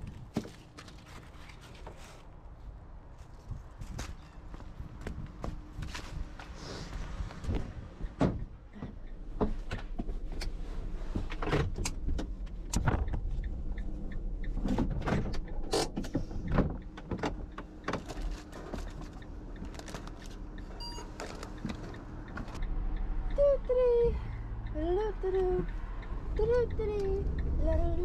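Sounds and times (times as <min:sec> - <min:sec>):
van engine hum: 0:00.0 - 0:28.0
knocks clunks and rattles: 0:07.5 - 0:13.5, 0:14.5 - 0:20.2.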